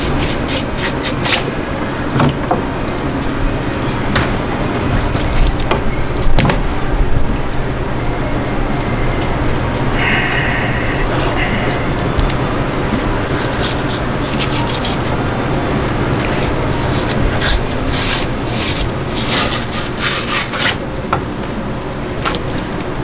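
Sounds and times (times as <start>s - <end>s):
knife scraping fish skin: 0.0s - 1.5s, 13.4s - 15.1s, 16.2s - 20.8s
steady low hum: 0.0s - 23.0s.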